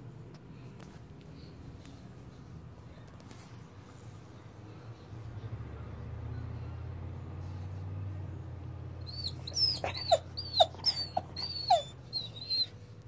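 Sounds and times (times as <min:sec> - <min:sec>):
puppy whining: 0:09.0 - 0:12.9.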